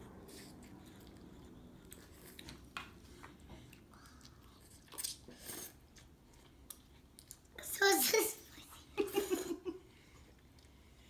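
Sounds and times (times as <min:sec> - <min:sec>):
faint slurping and chewing: 0:00.0 - 0:07.6.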